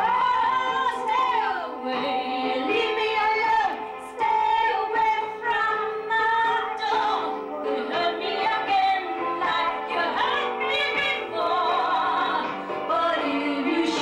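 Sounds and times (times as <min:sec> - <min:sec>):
woman singing a slow ballad: 0:00.0 - 0:07.1
backing music: 0:00.0 - 0:14.0.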